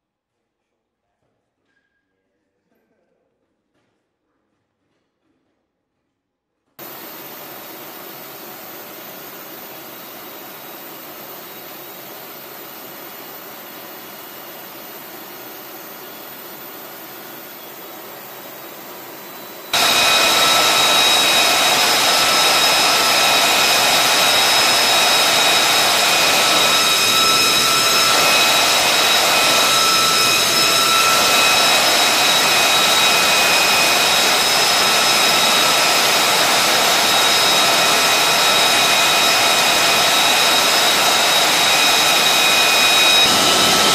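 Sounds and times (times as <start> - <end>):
jet engine whining: 6.8 - 43.9.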